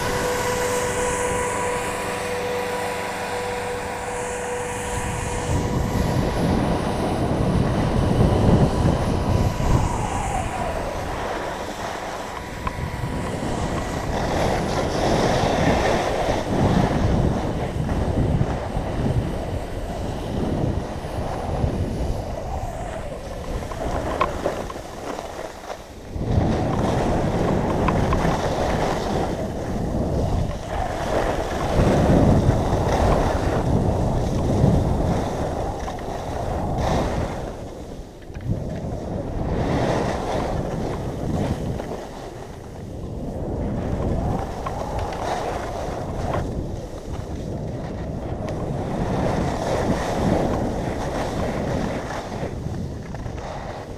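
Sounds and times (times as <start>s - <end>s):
skis hissing on snow: 0.0s - 38.2s
wind rushing over microphone: 0.0s - 53.9s.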